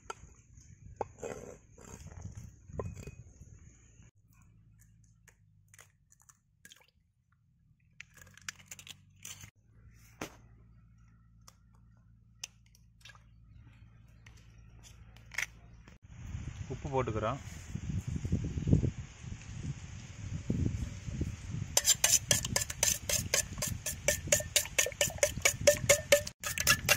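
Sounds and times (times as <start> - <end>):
eggshell tapping on bowl rim: 22.0 - 26.9.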